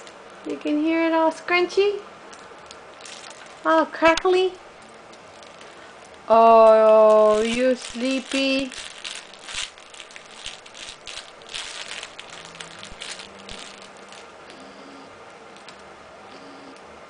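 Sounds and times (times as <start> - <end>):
crinkly play mat rustling: 2.9 - 4.5, 5.3 - 14.3.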